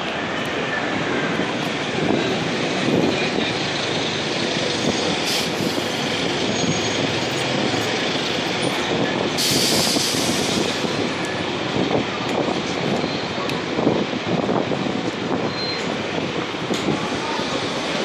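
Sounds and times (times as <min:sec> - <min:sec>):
city street traffic: 0:00.0 - 0:18.0.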